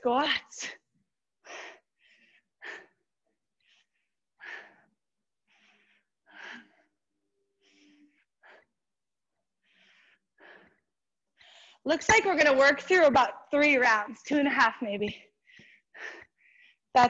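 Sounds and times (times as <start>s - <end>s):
woman breathing hard: 1.4s - 11.8s, 15.2s - 16.9s.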